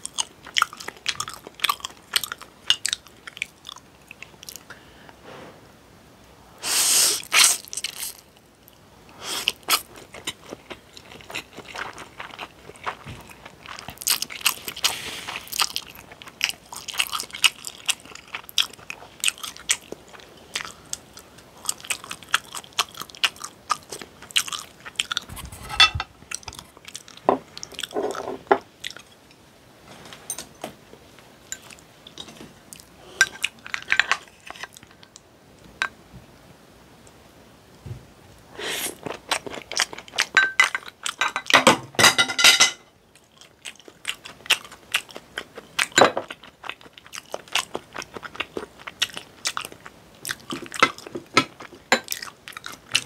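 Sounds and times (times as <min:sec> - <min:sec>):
chewing with wet mouth clicks: 0:00.0 - 0:04.7, 0:09.5 - 0:25.3, 0:28.8 - 0:29.1, 0:39.0 - 0:41.4, 0:43.1 - 0:53.0.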